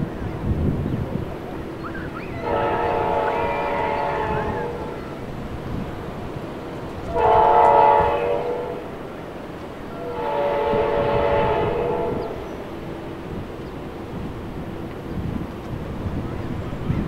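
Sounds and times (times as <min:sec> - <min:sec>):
train rumble: 0:00.0 - 0:17.0
train horn blasts: 0:02.4 - 0:05.4, 0:07.0 - 0:09.1, 0:09.9 - 0:13.4.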